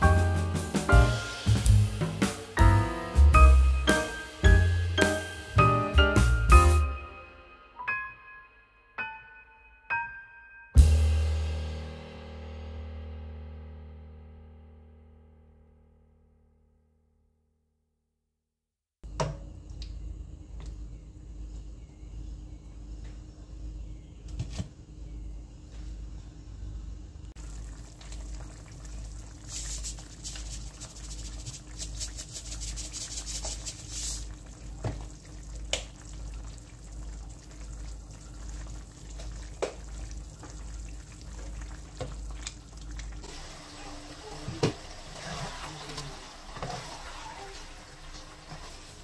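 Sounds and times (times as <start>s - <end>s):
sauce simmering and bubbling: 27.4s - 49.0s.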